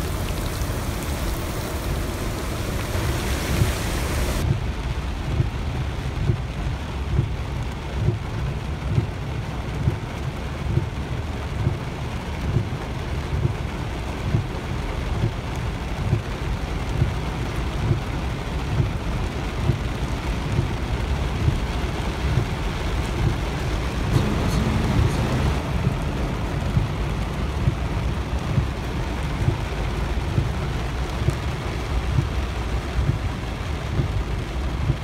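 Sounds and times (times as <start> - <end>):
heavy rain on car roof: 0.0 - 35.0
short low thumps: 24.0 - 29.7.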